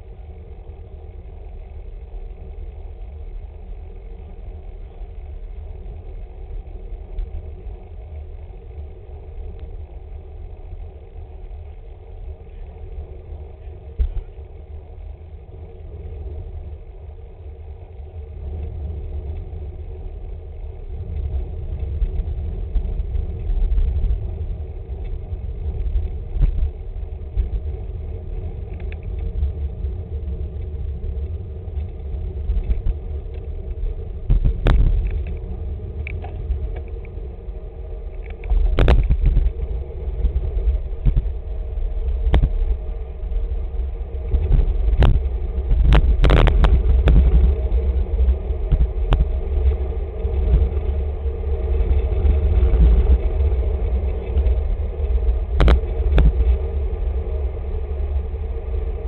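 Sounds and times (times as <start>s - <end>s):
tyre and road noise: 0.0s - 59.0s
wind buffeting microphone: 13.5s - 59.0s.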